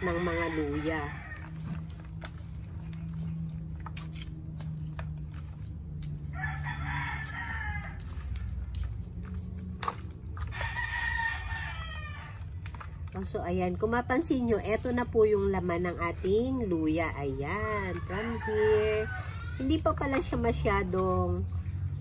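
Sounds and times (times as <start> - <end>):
rooster crowing: 0.0 - 1.6, 6.2 - 8.2, 10.5 - 12.5, 17.8 - 19.8.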